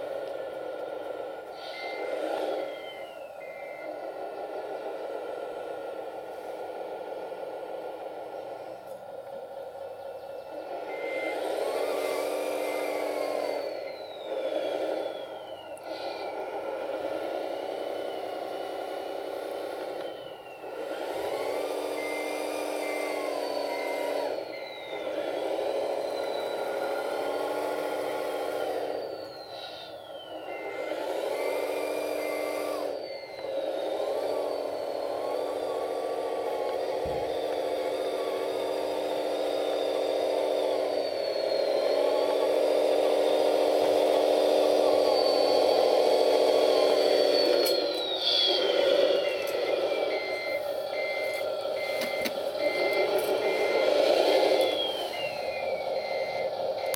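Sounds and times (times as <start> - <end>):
simulated diesel engine revving: 0.0 - 56.9
short electronic beeps: 1.4 - 4.2, 44.1 - 56.9
high whine sliding down: 10.7 - 56.9.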